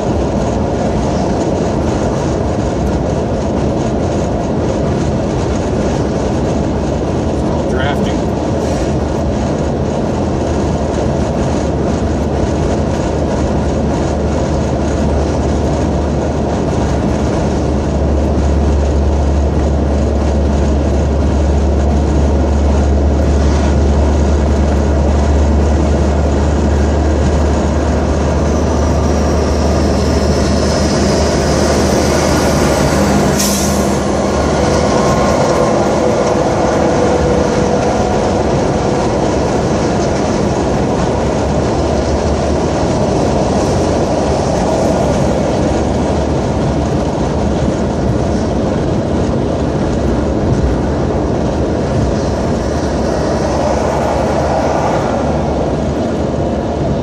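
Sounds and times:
car cabin road noise: 0:00.0 - 0:57.0
passing truck hum: 0:00.0 - 0:57.0.

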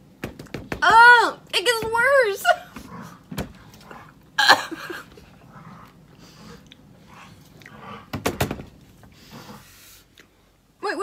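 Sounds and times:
people chewing: 0:02.6 - 0:10.6.

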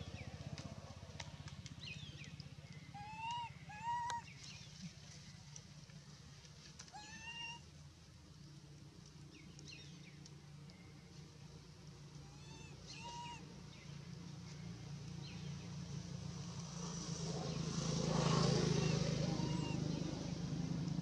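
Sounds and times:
monkey high calls: 0:02.9 - 0:04.3, 0:07.0 - 0:07.6, 0:12.3 - 0:13.5, 0:18.7 - 0:19.9.

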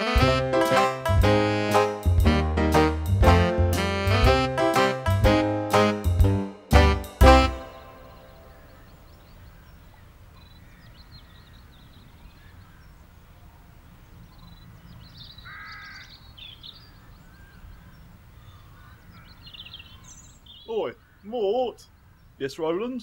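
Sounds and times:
birds calling and chirping: 0:07.3 - 0:23.0
harsh bird call: 0:15.2 - 0:23.0.

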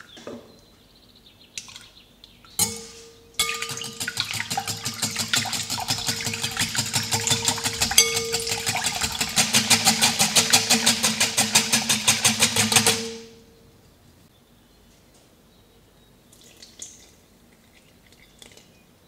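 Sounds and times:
rhythmic mixer clatter: 0:03.6 - 0:13.3.

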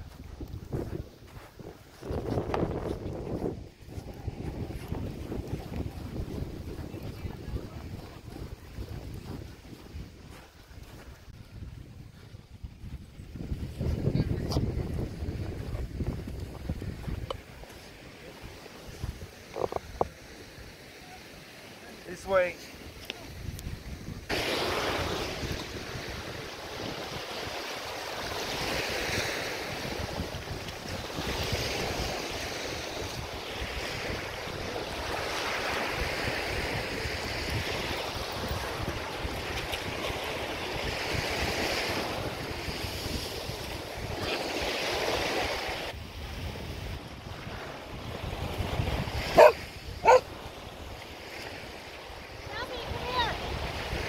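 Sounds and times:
small waves breaking on shore: 0:00.0 - 0:12.3, 0:13.4 - 0:54.0
wind rumbling on microphone: 0:00.0 - 0:21.2, 0:22.8 - 0:54.0
dog barking: 0:49.3 - 0:50.3.

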